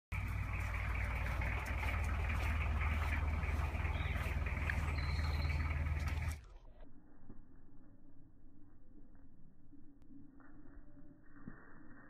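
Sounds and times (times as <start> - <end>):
engine running: 0.1 - 6.8.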